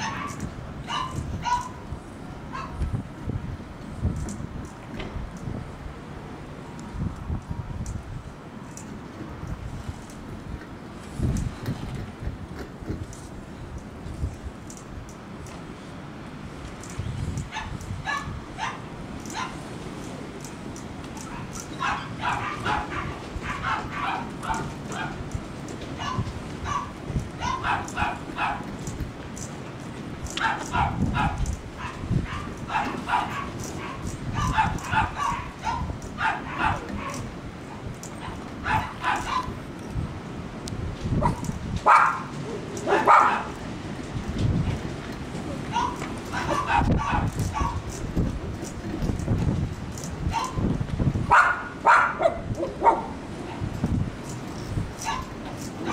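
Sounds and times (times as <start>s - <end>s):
dog yipping and whining: 0.0s - 1.8s, 21.3s - 25.1s, 26.0s - 28.6s, 30.4s - 37.2s, 45.7s - 47.8s, 50.3s - 50.6s, 55.0s - 55.3s.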